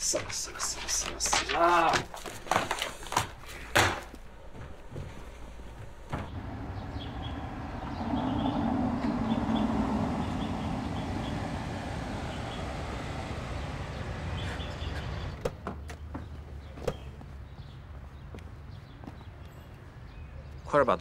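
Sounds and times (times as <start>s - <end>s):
car engine running: 6.3s - 15.4s.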